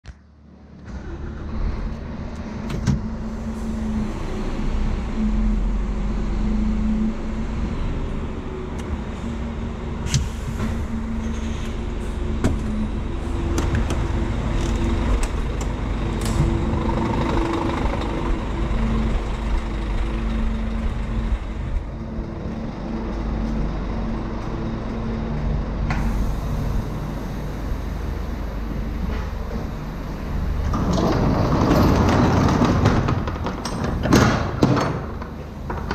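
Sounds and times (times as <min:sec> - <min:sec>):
truck diesel engine idling: 0:03.0 - 0:30.6.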